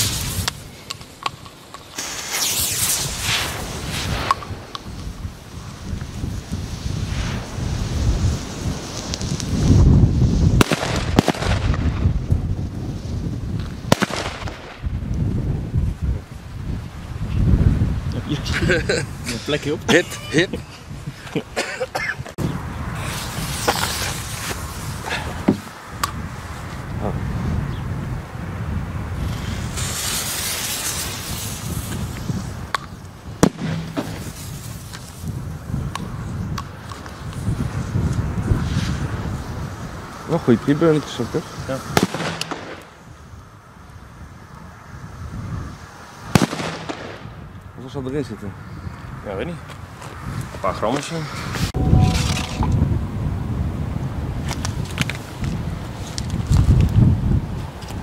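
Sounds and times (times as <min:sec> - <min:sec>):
firecracker fuses hissing: 0:00.0 - 0:14.9, 0:22.5 - 0:27.6, 0:29.2 - 0:43.4, 0:45.0 - 0:47.5
wind rumbling on microphone: 0:00.0 - 0:58.0
firecracker bangs: 0:02.0 - 0:04.9, 0:06.9 - 0:12.2, 0:13.9 - 0:14.9, 0:33.4 - 0:34.8, 0:41.9 - 0:43.0, 0:46.3 - 0:47.4.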